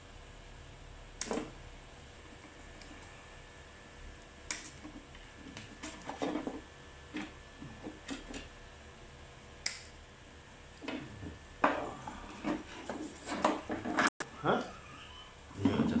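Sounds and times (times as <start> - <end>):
plastic shell rustling and scraping: 4.8 - 8.4, 12.3 - 14.1.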